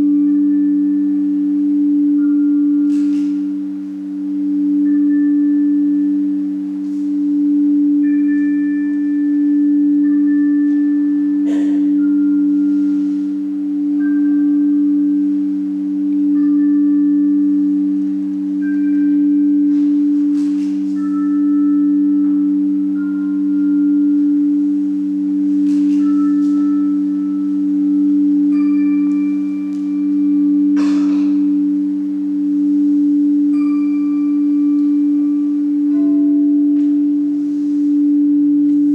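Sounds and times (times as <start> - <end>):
low two-note drone: 0.0 - 38.9
high chime-like tones: 4.6 - 38.9.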